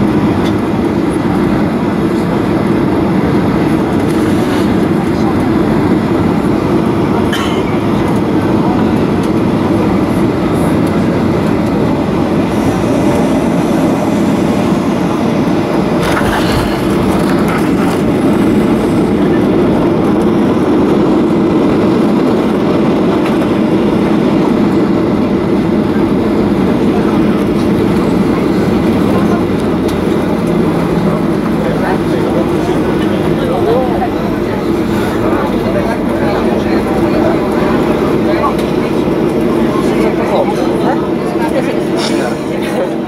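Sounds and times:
jet engines rumbling in cabin: 0.0s - 43.0s
rushing air: 11.2s - 31.6s.

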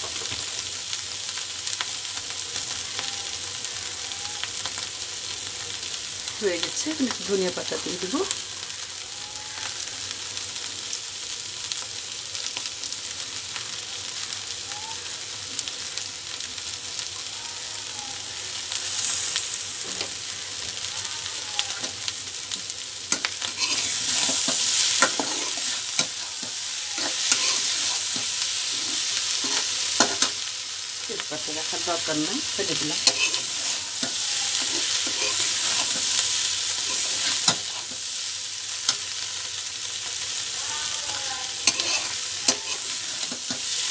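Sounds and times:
vegetables sizzling in oil: 0.0s - 43.9s
metal spatula scraping pan: 23.4s - 30.4s, 32.6s - 36.2s, 41.6s - 43.6s.

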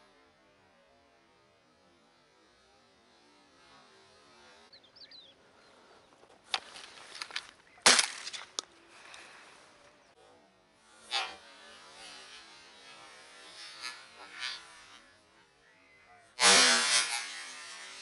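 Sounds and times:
shotgun shot: 7.8s - 8.5s.

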